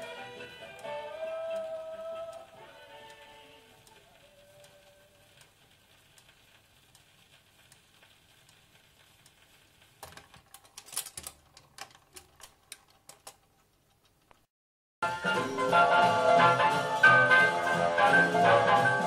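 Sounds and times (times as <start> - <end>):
stylus ticking in run-out groove: 0.0 - 10.0.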